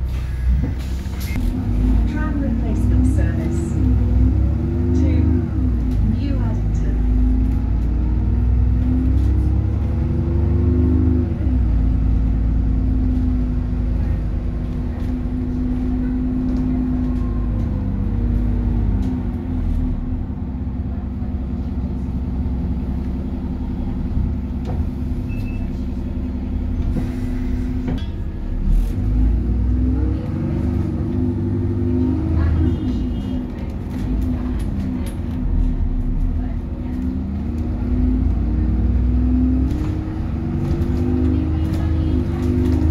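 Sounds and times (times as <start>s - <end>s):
bus engine rumble: 0.0s - 42.9s.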